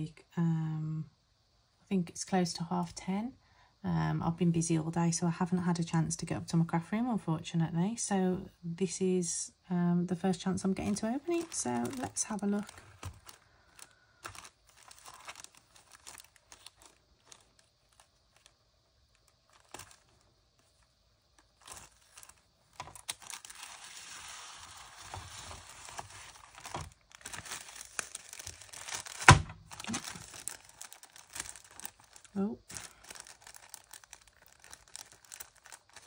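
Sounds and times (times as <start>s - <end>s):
twine rustling: 10.3s - 36.0s
wrapping paper crinkling and tearing: 10.5s - 36.0s
paper ripping sharply: 22.9s - 32.2s.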